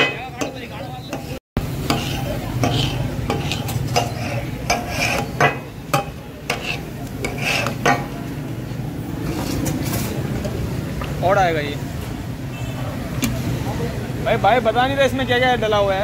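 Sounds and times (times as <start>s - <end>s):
metal spatulas scraping on griddle: 0.0s - 8.2s, 9.2s - 10.3s.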